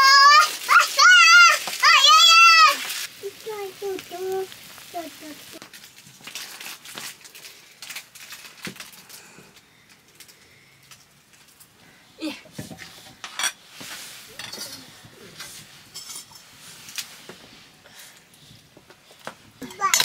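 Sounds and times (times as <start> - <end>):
cutlery clinking against dishes: 12.7 - 13.6, 14.4 - 14.9, 15.9 - 16.4, 19.6 - 20.0.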